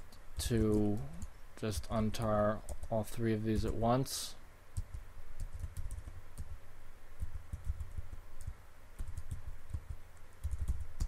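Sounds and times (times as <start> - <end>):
typing on a computer keyboard: 0.4 - 2.0, 2.6 - 3.0, 4.8 - 6.6, 7.2 - 11.0.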